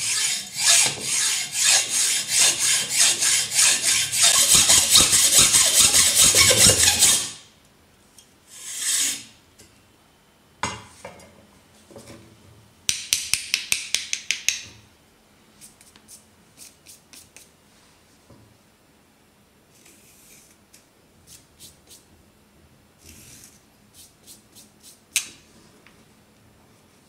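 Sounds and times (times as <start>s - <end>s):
hacksaw cutting stone: 0.0s - 7.4s
short scraping strokes: 0.0s - 7.4s, 8.5s - 9.3s.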